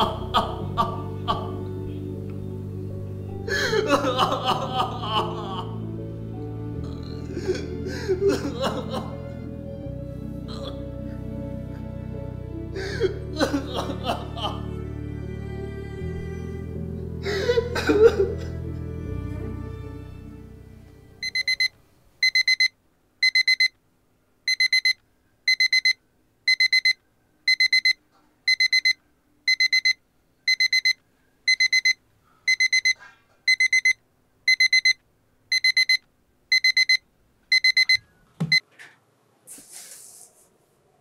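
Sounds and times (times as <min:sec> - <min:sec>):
alarm clock beeping: 0:21.2 - 0:23.7, 0:24.5 - 0:38.6.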